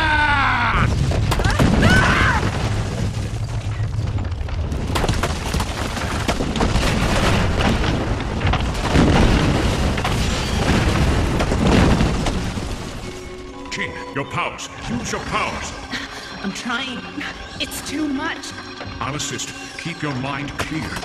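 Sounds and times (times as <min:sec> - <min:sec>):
rock cracking and crashing: 0:00.0 - 0:13.6
earthquake deep rumble: 0:00.0 - 0:13.7.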